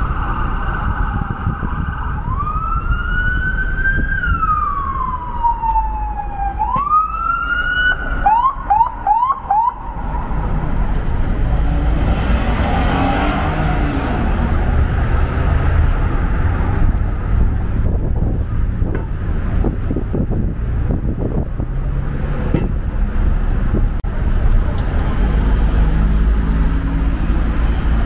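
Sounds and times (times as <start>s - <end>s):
emergency vehicle siren: 0.0s - 10.9s
city traffic rumble: 0.0s - 28.0s.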